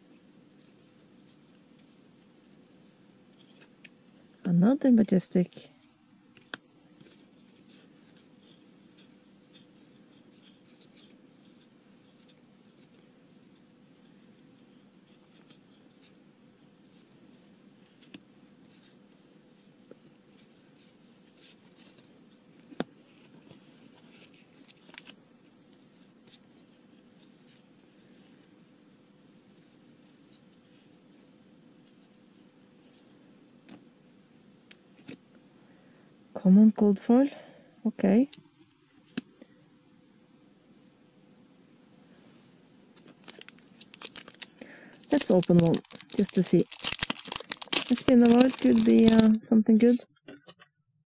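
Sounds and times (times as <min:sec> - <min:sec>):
faint steady hum: 0:00.0 - 0:50.1
trading cards clicking and scraping: 0:43.0 - 0:50.6.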